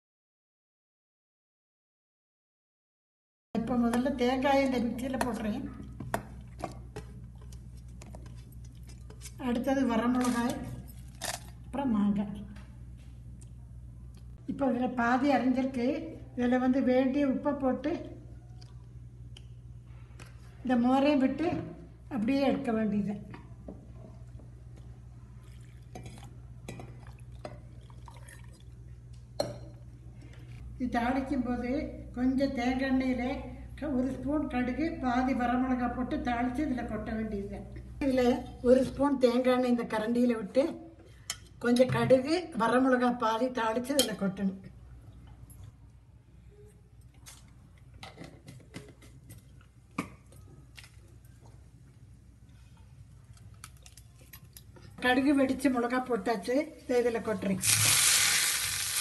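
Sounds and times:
liquid pouring and splashing: 0:27.0 - 0:28.8, 0:57.6 - 0:59.0.

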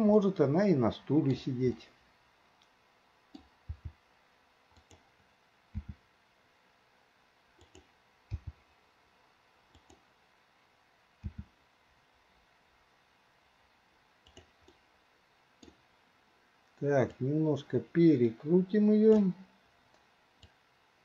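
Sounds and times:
mouse and keyboard clicks: 0:04.8 - 0:05.0, 0:07.6 - 0:08.6, 0:09.7 - 0:10.0, 0:11.2 - 0:11.5, 0:14.2 - 0:14.8.

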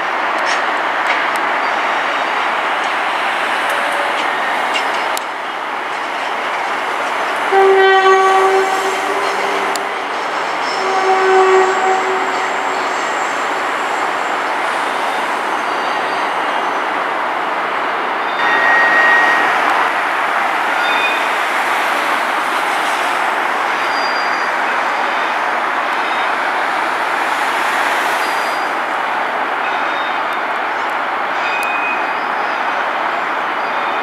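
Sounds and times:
electric trains moving: 0:00.0 - 0:34.0
motorway traffic: 0:00.1 - 0:31.3
train horn blasts: 0:07.4 - 0:13.3, 0:18.4 - 0:23.1.

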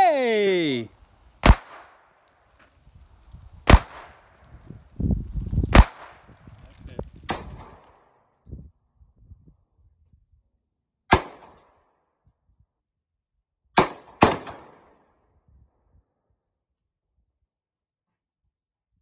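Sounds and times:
handgun shots: 0:01.4 - 0:02.0, 0:03.7 - 0:04.2, 0:05.7 - 0:06.2.

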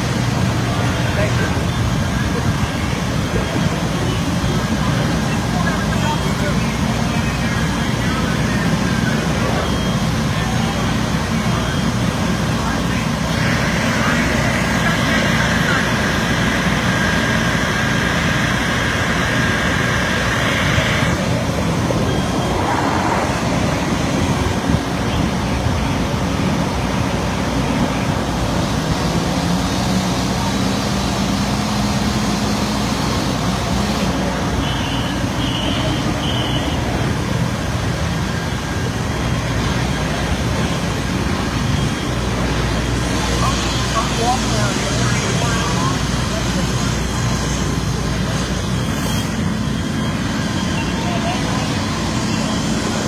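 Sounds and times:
diesel engines rumbling: 0:00.0 - 0:53.0.

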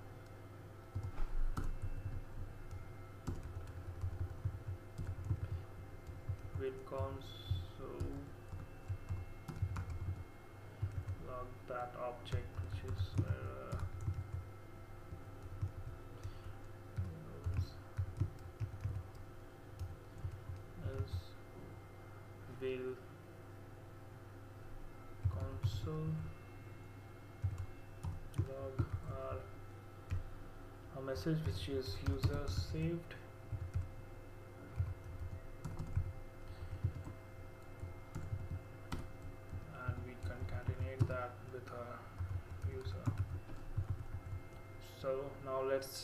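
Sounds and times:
faint steady hum: 0:00.0 - 0:46.0
keyboard typing: 0:00.9 - 0:11.3, 0:12.2 - 0:14.5, 0:15.1 - 0:19.2, 0:19.8 - 0:21.2, 0:27.4 - 0:29.4, 0:31.2 - 0:32.9, 0:33.5 - 0:34.0, 0:34.6 - 0:44.6.

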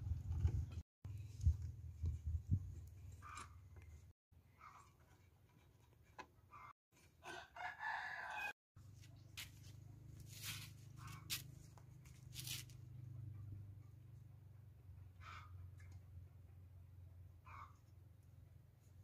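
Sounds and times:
rooster crowing: 0:07.2 - 0:08.6.

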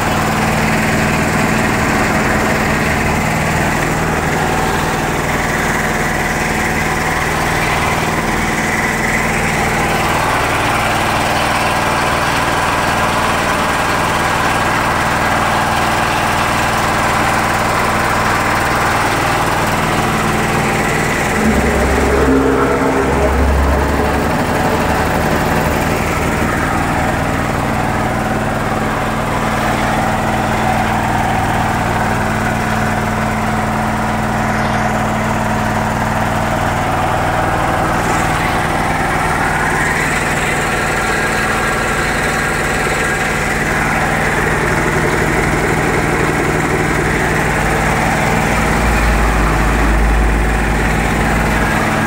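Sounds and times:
air compressor running: 0:00.0 - 0:52.0
low rumble: 0:19.8 - 0:27.6.

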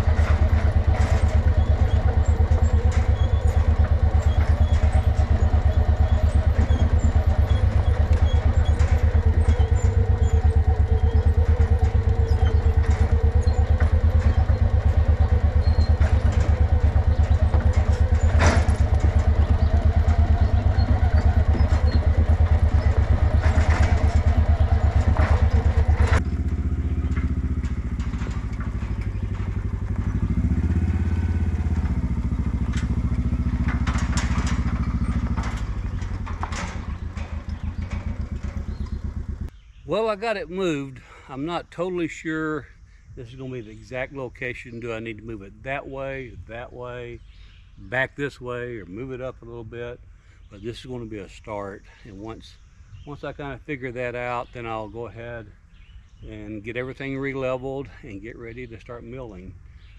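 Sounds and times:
metal clank: 0:00.0 - 0:39.5
vehicle engine running: 0:00.0 - 0:41.4.

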